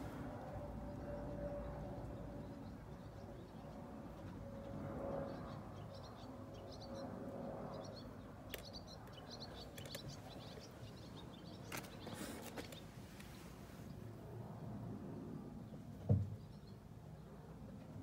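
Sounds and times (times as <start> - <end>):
faint outdoor background noise: 0.0 - 18.0
small bird chirping: 7.7 - 12.9.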